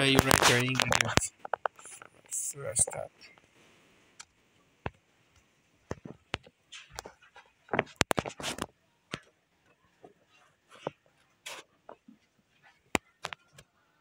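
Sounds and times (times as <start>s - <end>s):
fingers tapping phone screen: 5.9s - 9.3s.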